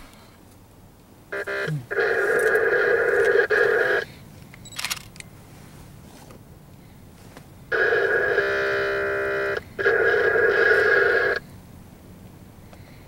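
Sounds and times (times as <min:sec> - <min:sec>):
locomotive air horn blasts: 0:01.3 - 0:02.4, 0:07.7 - 0:11.4.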